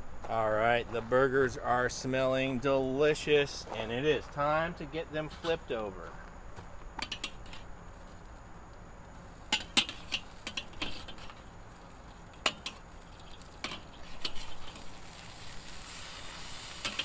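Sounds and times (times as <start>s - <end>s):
metal spatula scraping grill grate: 7.0s - 8.2s, 9.2s - 17.0s
burgers sizzling: 7.0s - 17.0s.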